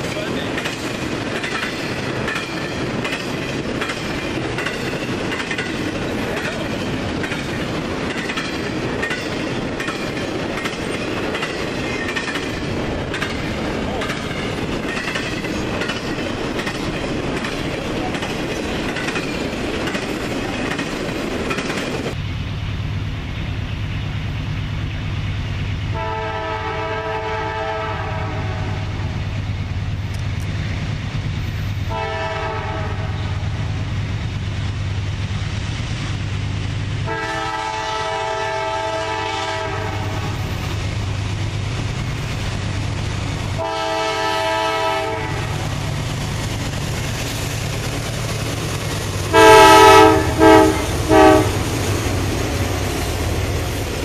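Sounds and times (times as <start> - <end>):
diesel locomotive engine rumbling: 0.0 - 54.0
freight train cars rolling past: 0.0 - 54.0
locomotive air horn blasts: 25.9 - 28.9, 31.9 - 33.4, 37.0 - 40.3, 43.6 - 45.6, 49.3 - 51.7.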